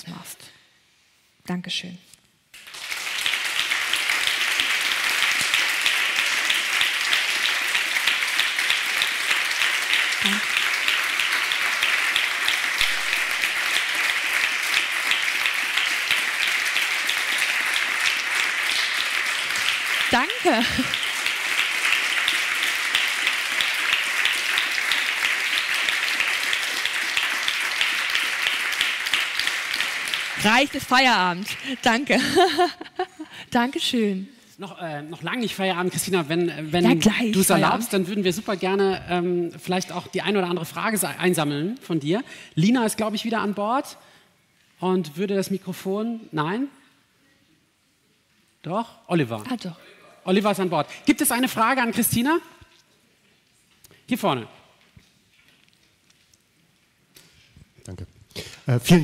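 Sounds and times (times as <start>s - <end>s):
audience applauding: 2.6s - 32.7s, 35.3s - 38.4s.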